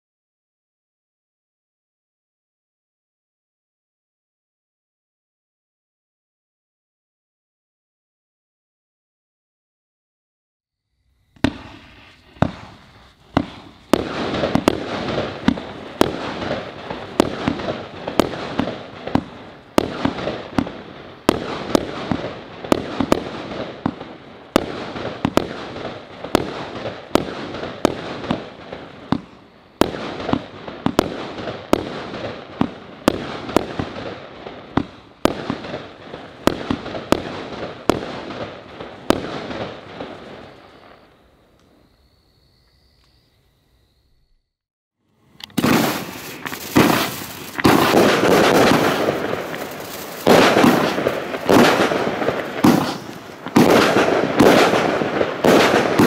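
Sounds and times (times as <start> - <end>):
crackling firework bursts: 11.0 - 41.8, 45.0 - 56.0
firework reports: 11.3 - 41.2, 45.1 - 56.0.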